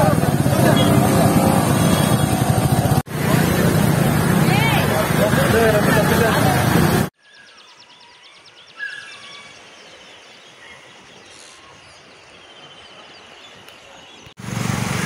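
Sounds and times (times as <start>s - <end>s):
birds chirping: 5.8s - 14.4s.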